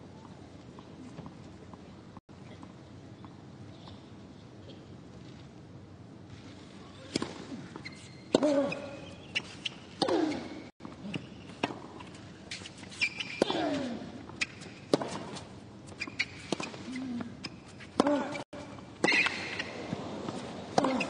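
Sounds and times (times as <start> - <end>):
tennis ball bounces: 19.0 - 21.0.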